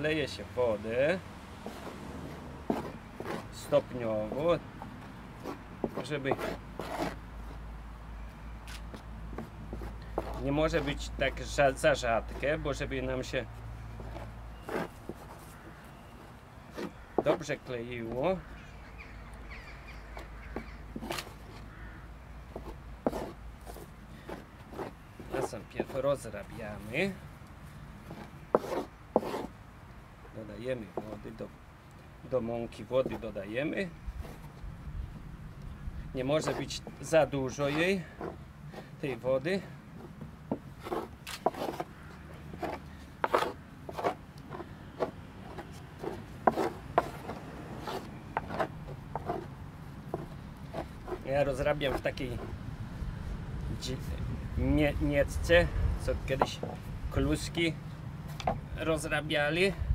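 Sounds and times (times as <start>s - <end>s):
hands knocking and scraping wood: 2.6s - 3.5s, 4.3s - 7.2s, 8.7s - 12.6s, 16.7s - 18.3s, 20.2s - 21.7s, 22.5s - 26.7s, 28.0s - 29.5s, 40.0s - 49.5s, 50.1s - 52.5s, 56.3s - 56.9s, 58.3s - 58.7s.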